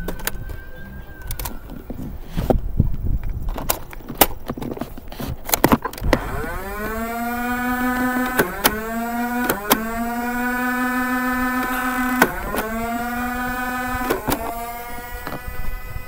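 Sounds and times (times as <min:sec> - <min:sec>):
flywheel motor whine: 0:00.0 - 0:02.5, 0:06.0 - 0:16.0
handling clicks and rattles: 0:00.0 - 0:15.6
toy blaster firing clicks: 0:01.2 - 0:01.8, 0:05.9 - 0:16.0.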